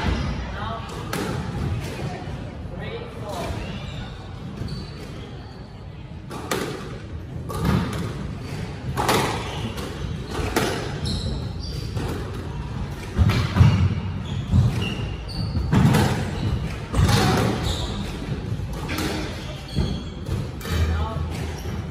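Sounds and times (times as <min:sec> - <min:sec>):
shoe squeaks on wooden floor: 0:03.6 - 0:05.5, 0:08.4 - 0:12.3, 0:13.3 - 0:18.3, 0:18.9 - 0:20.4
squash ball hits: 0:06.3 - 0:11.0, 0:13.0 - 0:21.6.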